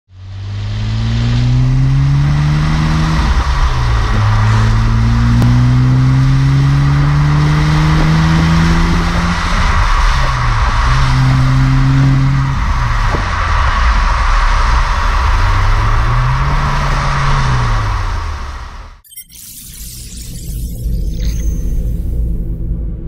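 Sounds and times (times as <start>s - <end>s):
car exhaust accelerating: 0.1s - 19.0s
road and wind noise: 0.1s - 19.0s.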